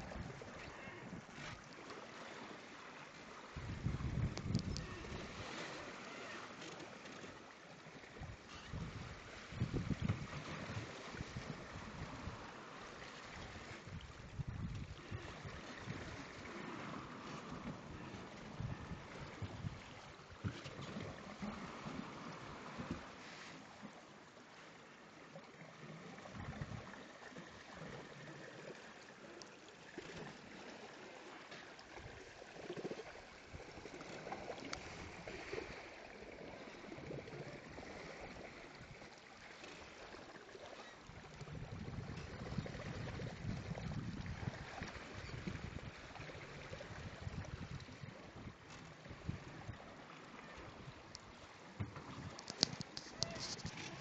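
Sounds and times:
water rushing along hull: 0:00.0 - 0:54.0
wind buffeting microphone: 0:03.6 - 0:05.3, 0:08.7 - 0:12.4, 0:41.4 - 0:45.9.

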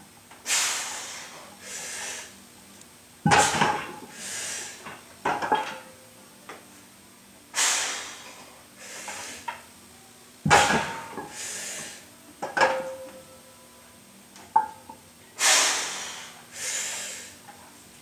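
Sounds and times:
forceful exhales: 0:00.5 - 0:02.3, 0:07.6 - 0:09.4, 0:15.4 - 0:17.4.

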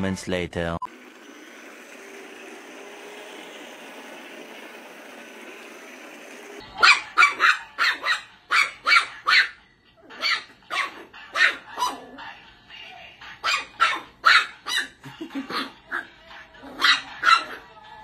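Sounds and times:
toy train motor humming: 0:00.9 - 0:08.9
small dog yapping: 0:06.8 - 0:12.2, 0:13.4 - 0:16.0, 0:16.6 - 0:17.7.

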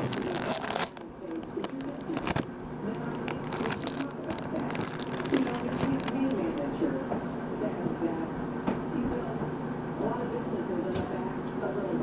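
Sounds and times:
plastic wrapper crinkling: 0:00.0 - 0:07.1.

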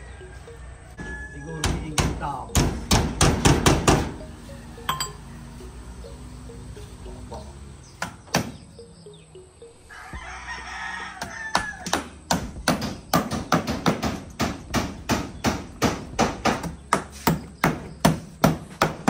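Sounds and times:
rooster crowing: 0:00.0 - 0:02.0, 0:04.4 - 0:06.1, 0:09.8 - 0:12.2.

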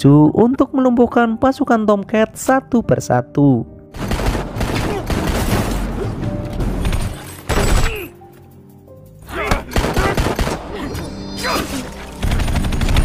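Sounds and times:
action film music: 0:00.0 - 0:13.0.

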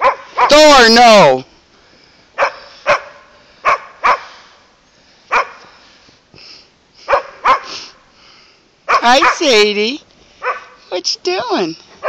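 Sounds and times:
dog barking: 0:00.0 - 0:00.7, 0:02.4 - 0:04.4, 0:05.3 - 0:05.6, 0:07.1 - 0:07.8, 0:08.9 - 0:09.6, 0:10.4 - 0:10.8.

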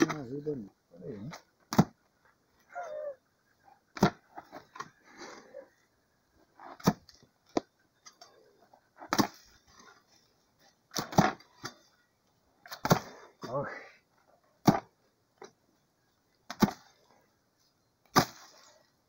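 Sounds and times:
hoe chopping into soil: 0:06.7 - 0:07.2, 0:09.0 - 0:09.5, 0:10.9 - 0:11.8, 0:14.6 - 0:14.9, 0:16.5 - 0:16.9, 0:18.1 - 0:18.7.

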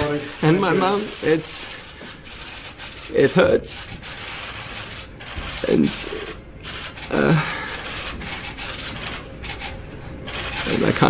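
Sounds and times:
room noise: 0:00.0 - 0:11.0
man crying and sobbing: 0:07.1 - 0:07.8.

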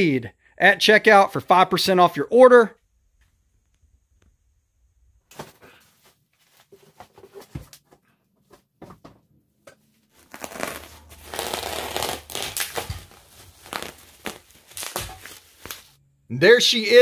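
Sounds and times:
knocks and rustles: 0:06.5 - 0:09.3
bubble wrap crinkling and tearing: 0:10.1 - 0:16.0.

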